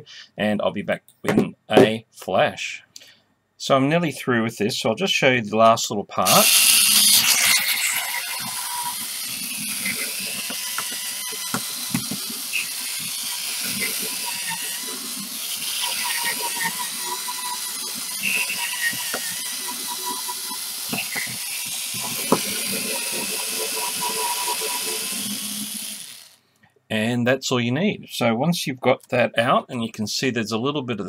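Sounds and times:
cordless drill grinding metal: 6.3 - 26.4.

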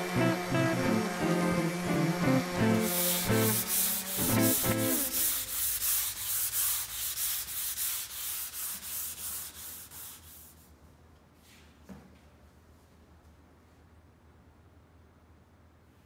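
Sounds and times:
music cue: 0.0 - 5.6
sanding strokes on wood: 0.0 - 10.6.

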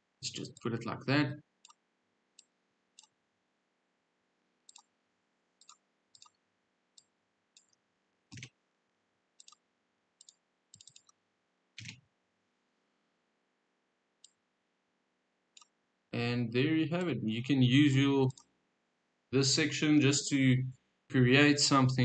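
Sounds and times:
mouse and keyboard clicks: 4.7 - 4.9, 5.6 - 6.4, 7.0 - 8.6, 9.4 - 9.6, 10.2 - 11.2, 11.8 - 12.0.

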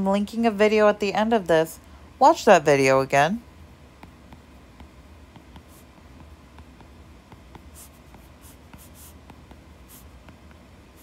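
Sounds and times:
stylus scratching on glass screen: 4.0 - 11.0.

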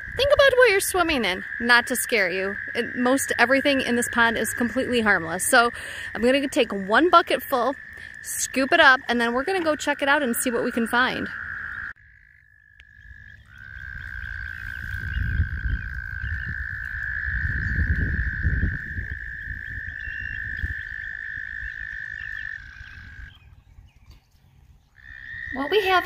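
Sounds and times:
low wind rumble on microphone: 0.0 - 3.0, 13.0 - 26.0
frogs trilling: 0.0 - 23.9, 24.9 - 26.0.

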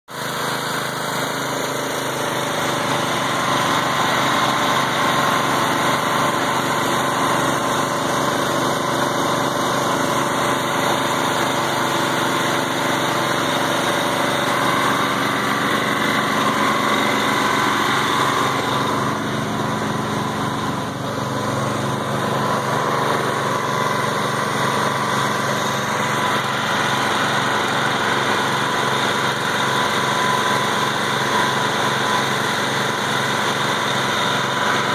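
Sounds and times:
small engine running: 0.1 - 34.9.

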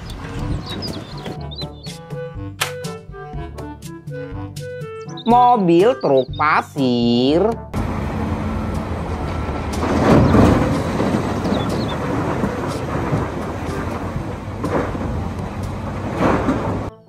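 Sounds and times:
diesel engines running: 5.9 - 16.9
earth pouring into truck bed: 9.8 - 16.9.

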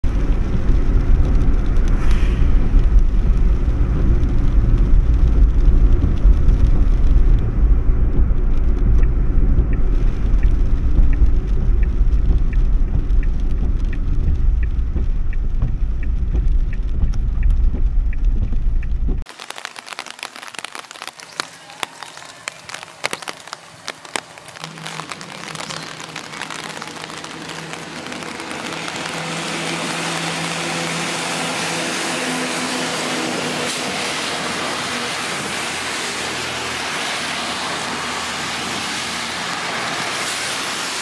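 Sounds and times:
car engine and tyres rumbling: 0.0 - 19.3, 21.8 - 41.0
turn signal ticking: 8.0 - 19.3.

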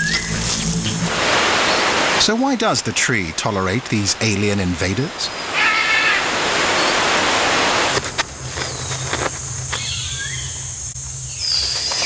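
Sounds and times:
faint whistled glides: 0.0 - 2.0
high insect whine: 0.0 - 2.2, 5.4 - 12.0
low hum: 0.0 - 2.2
dense insect hiss: 0.0 - 12.0.

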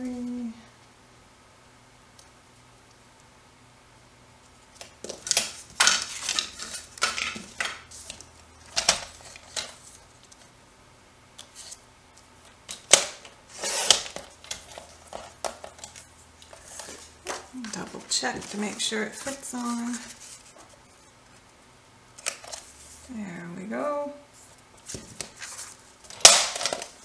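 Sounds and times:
paper tools clicking and scraping: 4.8 - 10.5, 12.7 - 21.0.

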